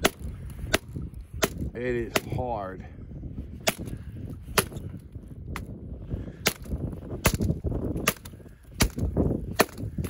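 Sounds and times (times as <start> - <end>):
tomahawk striking dead wood: 0.0 - 2.4, 3.6 - 4.9, 6.4 - 10.0.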